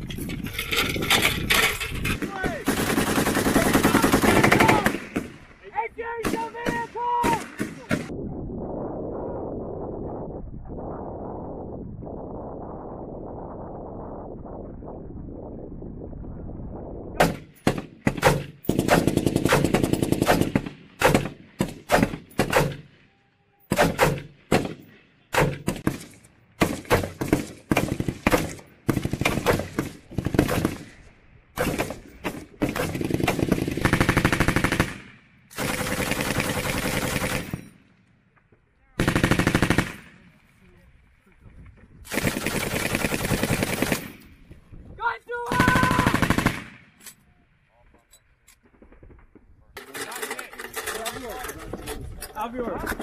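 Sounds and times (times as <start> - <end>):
rifle shots: 2.2 - 5.5, 6.2 - 8.1, 17.2 - 23.1, 23.7 - 37.8, 39.0 - 40.4, 42.1 - 44.3, 45.5 - 47.0
machine gun automatic bursts: 2.6 - 5.3, 17.6 - 22.9, 26.6 - 30.8, 31.6 - 37.8, 39.0 - 40.2, 42.1 - 44.2, 45.6 - 46.9
low rumble: 7.9 - 18.1.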